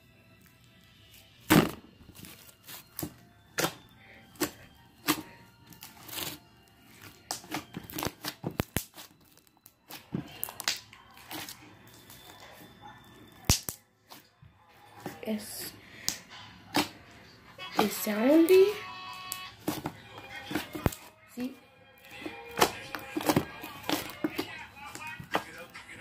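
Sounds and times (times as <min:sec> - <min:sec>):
slime squishing with pops and clicks: 0:00.4 - 0:14.3, 0:16.0 - 0:17.0, 0:22.0 - 0:25.5.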